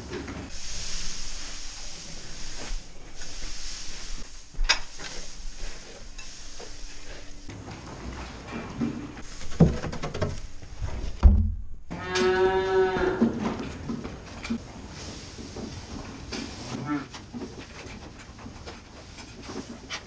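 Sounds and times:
pitchfork rustling hay: 0:00.1 - 0:08.3, 0:14.8 - 0:16.9
heavy thump: 0:10.9 - 0:11.8
cow mooing: 0:11.9 - 0:13.4.

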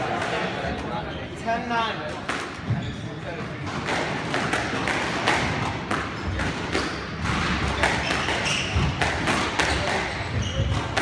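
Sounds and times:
squash ball thuds: 0:03.6 - 0:11.0.

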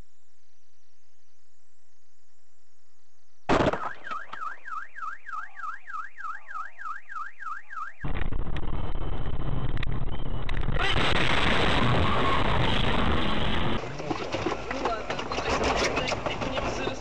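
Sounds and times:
car alarm wailing: 0:03.8 - 0:08.1
loud steady rumbling: 0:08.0 - 0:14.0.

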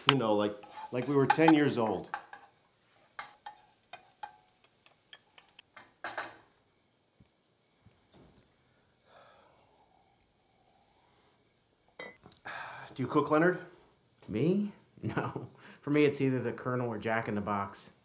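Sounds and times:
kitchen utensils clicking: 0:00.0 - 0:02.6.

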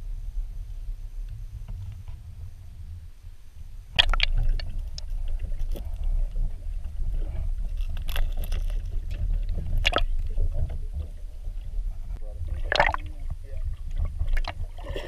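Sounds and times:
muffled underwater rumble: 0:00.0 - 0:15.0
sharp crackles: 0:03.9 - 0:14.6.

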